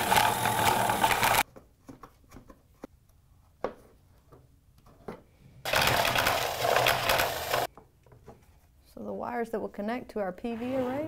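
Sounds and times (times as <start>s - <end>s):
impact driver drilling plastic: 0.0s - 1.4s, 5.7s - 7.7s.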